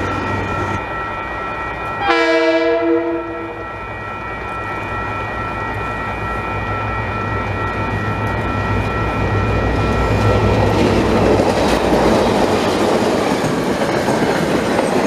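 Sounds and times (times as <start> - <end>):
locomotive horn blast: 2.0 - 3.6.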